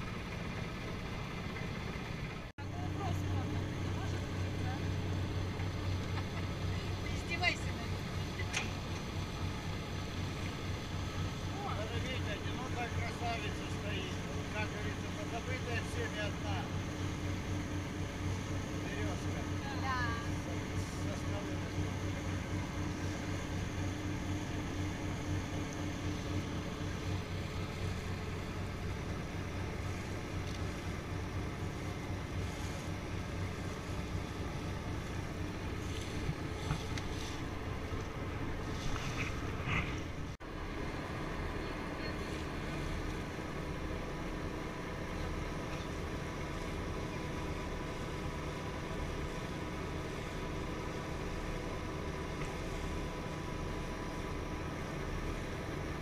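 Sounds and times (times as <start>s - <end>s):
motorboat engine drone: 0.0s - 56.0s
water rushing along hull: 0.0s - 56.0s.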